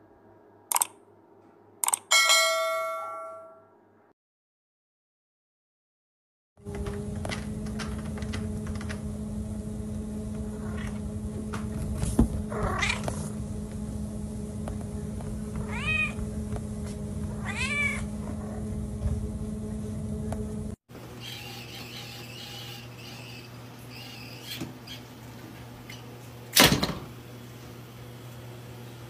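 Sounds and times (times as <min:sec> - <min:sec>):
treadmill humming: 0:06.6 - 0:22.9
cat meowing: 0:15.6 - 0:16.2, 0:17.4 - 0:18.1.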